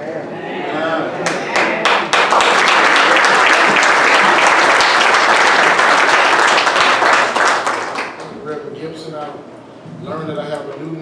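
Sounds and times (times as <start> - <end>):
congregation applauding: 1.2 - 8.4.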